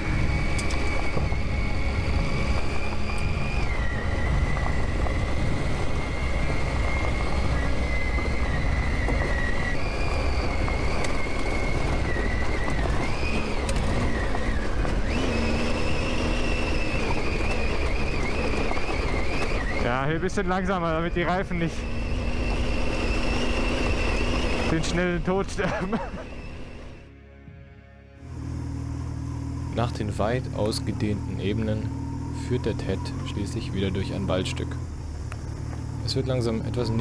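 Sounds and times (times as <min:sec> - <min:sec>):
motorcycle engine whine: 0:00.0 - 0:37.0
wind rumble: 0:00.0 - 0:37.0
tyres on loose stones: 0:00.3 - 0:26.9.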